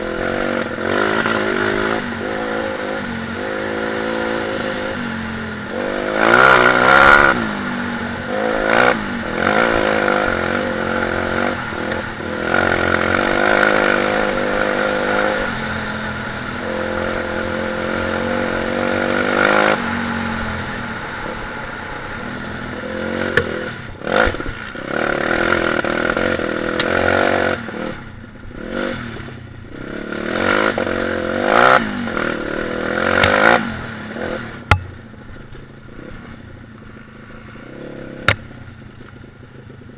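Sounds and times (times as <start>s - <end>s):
motorbike engine revving: 0.0s - 35.2s
bike knocks and rattles: 23.3s - 24.5s, 34.6s - 35.7s.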